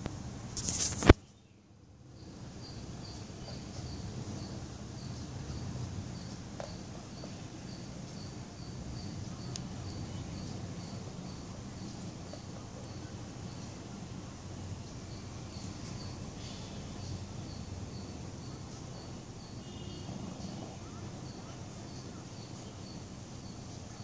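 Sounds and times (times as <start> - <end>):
low rustling noise: 0.0 - 1.4
faint high chirp: 14.8 - 24.0.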